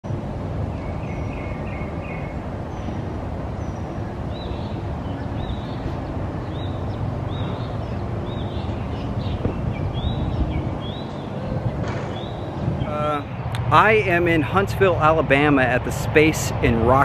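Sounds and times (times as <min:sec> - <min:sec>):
low outdoor rumble: 0:00.1 - 0:17.0
bird chirping: 0:00.7 - 0:14.1.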